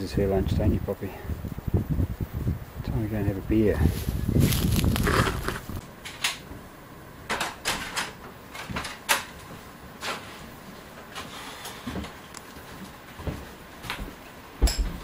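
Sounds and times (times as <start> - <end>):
boots walking on wooden floorboards: 11.9 - 15.0.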